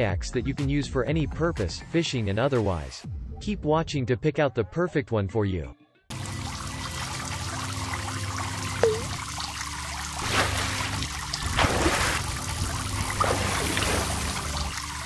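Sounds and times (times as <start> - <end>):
water trickling: 6.1 - 15.0
low tone: 8.8 - 9.2
water plop: 8.8 - 9.3, 10.2 - 14.8
water splashes: 8.8 - 15.0.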